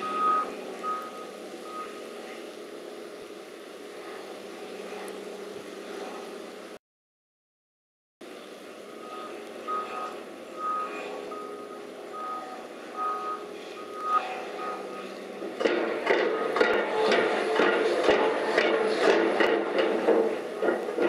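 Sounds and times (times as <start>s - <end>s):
reversing alarm beeping: 0.0s - 2.1s, 8.9s - 15.3s
heavy machinery running: 0.0s - 6.8s, 8.2s - 21.0s
repeated metallic knocks: 15.4s - 21.0s.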